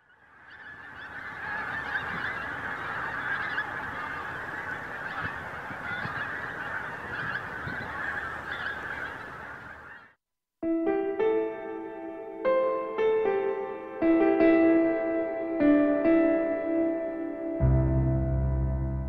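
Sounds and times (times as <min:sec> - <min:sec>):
geese honking: 0:00.0 - 0:10.2.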